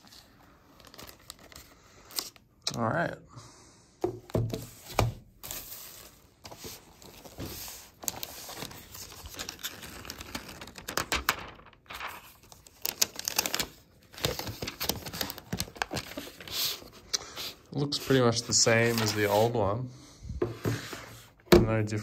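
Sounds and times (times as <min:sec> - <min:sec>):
plastic wrapping crinkling: 0:00.1 - 0:02.4, 0:05.9 - 0:17.0.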